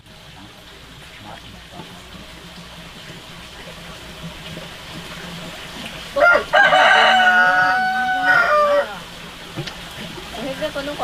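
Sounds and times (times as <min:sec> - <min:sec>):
rooster crowing: 0:06.2 - 0:09.1.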